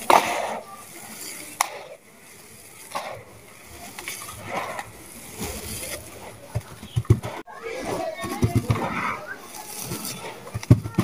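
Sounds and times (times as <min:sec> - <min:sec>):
dull thumps: 0:06.5 - 0:07.4.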